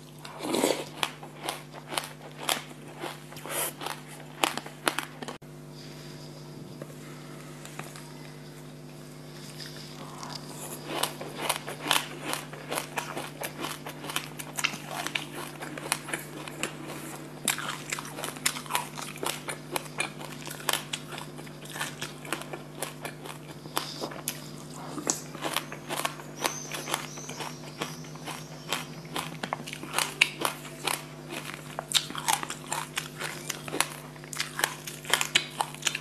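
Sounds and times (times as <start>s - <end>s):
chewing crunchy seeds: 0.0s - 5.4s, 6.1s - 36.0s
low hum: 4.1s - 21.8s.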